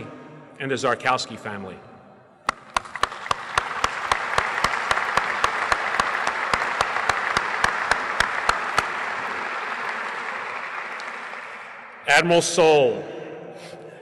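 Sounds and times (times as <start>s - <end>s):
audience applause: 2.5s - 12.1s
close hand claps: 2.5s - 12.1s.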